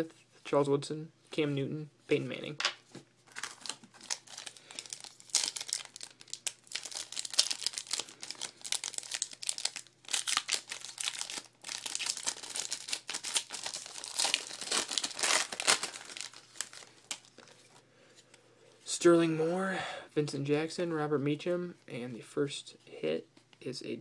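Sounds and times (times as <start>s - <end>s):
foil wrapper crinkling and tearing: 3.3s - 17.3s.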